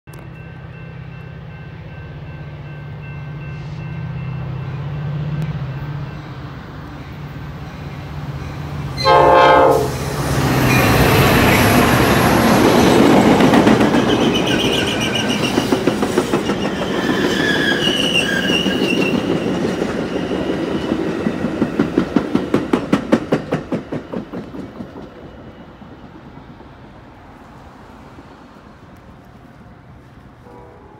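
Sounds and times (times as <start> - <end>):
train rushing past: 0.2 - 30.9
train horn blast: 9.0 - 11.4, 30.4 - 30.9
wheels clacking over rail joints: 10.4 - 25.6.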